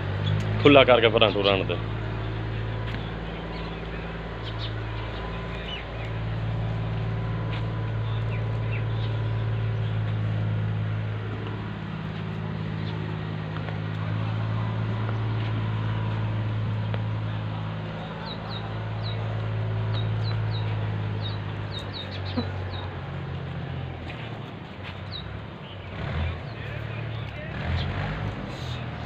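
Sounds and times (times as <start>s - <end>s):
low mechanical hum: 0.0s - 29.0s
bird chirps: 1.2s - 10.4s, 19.9s - 22.9s.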